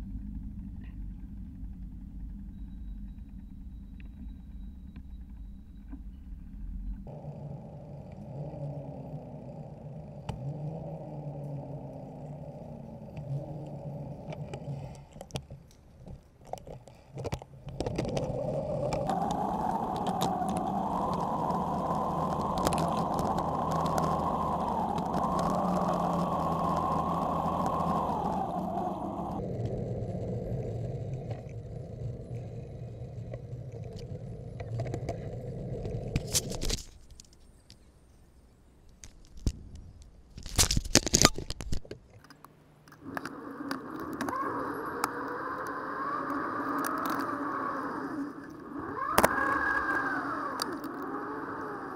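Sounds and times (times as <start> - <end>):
bicycle tyres on road: 11.1 - 37.9, 43.0 - 51.9
sharp clicks: 12.8 - 29.8, 38.9 - 51.9
wind noise on microphone: 17.7 - 37.3.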